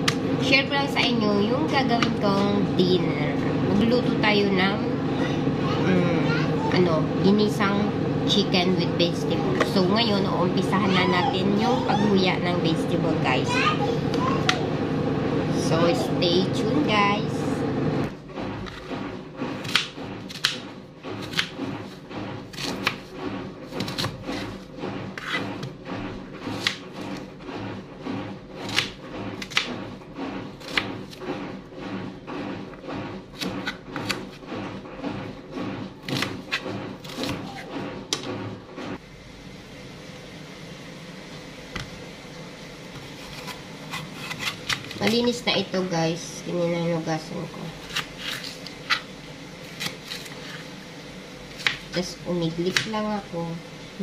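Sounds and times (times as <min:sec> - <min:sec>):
knife chopping on plastic board: 0:19.6 - 0:21.6, 0:22.5 - 0:23.1, 0:23.7 - 0:24.6, 0:26.4 - 0:27.1, 0:30.6 - 0:31.2, 0:52.7 - 0:53.0.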